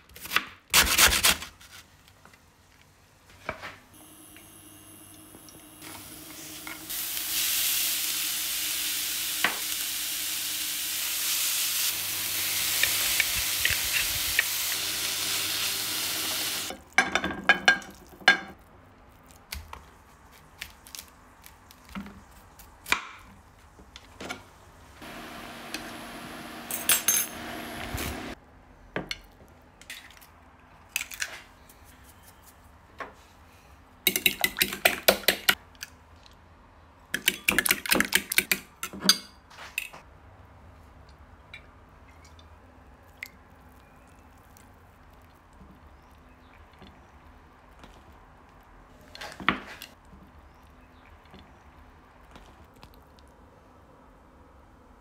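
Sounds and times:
carrot sizzling in frying pan: 0:04.0 - 0:16.7.

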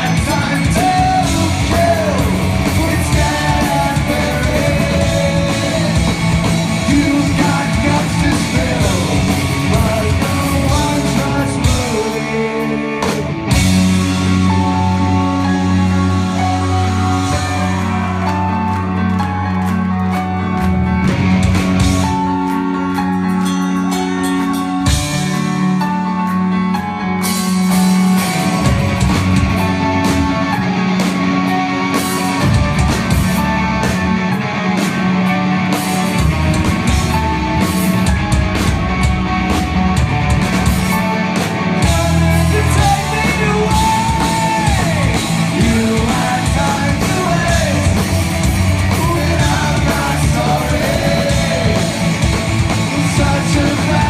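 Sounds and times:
person singing: 0:00.0 - 0:13.5, 0:41.8 - 0:48.1, 0:48.8 - 0:54.0
drum kit: 0:00.0 - 0:26.5, 0:27.1 - 0:54.0
bass guitar: 0:00.0 - 0:54.0
electric guitar: 0:00.0 - 0:54.0.

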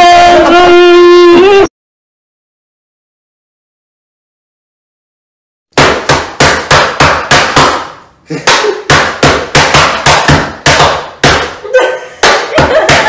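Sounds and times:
hands slapping a tabletop: 0:05.8 - 0:11.6, 0:12.2 - 0:13.0.

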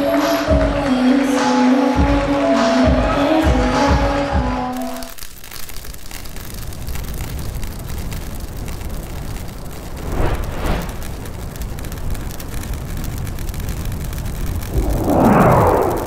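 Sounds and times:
crackling rumbling noise: 0:04.7 - 0:16.0
whoosh: 0:09.9 - 0:11.4, 0:14.6 - 0:16.0.

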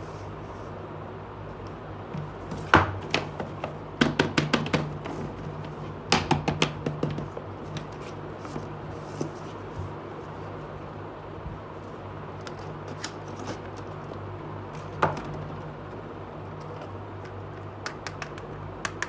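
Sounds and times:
steady low hum: 0:00.0 - 0:19.0
quick clicks and taps: 0:17.2 - 0:19.0.

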